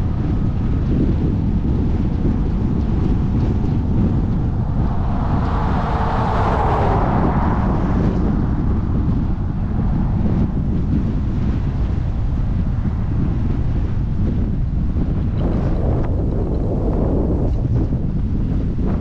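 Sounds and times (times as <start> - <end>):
wind noise on microphone: 0.0 - 19.0
combine harvester rumbling: 1.5 - 13.4.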